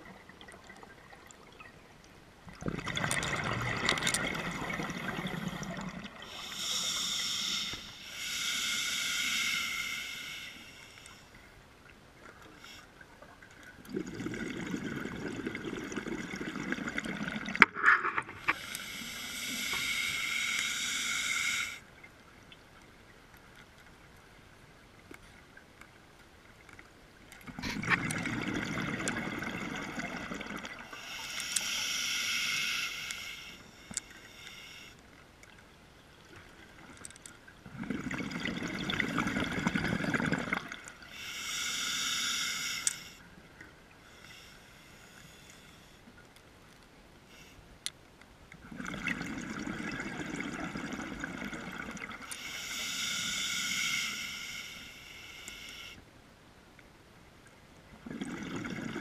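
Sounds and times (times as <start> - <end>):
exhaled bubbles rumbling: 2.5 - 6.3, 13.2 - 17.6, 27.5 - 30.8, 37.6 - 40.8, 58.0 - 59.0
regulator breath hiss: 6.2 - 11.3, 18.5 - 21.8, 30.9 - 35.0, 41.1 - 43.2, 44.1 - 46.0, 52.3 - 56.0.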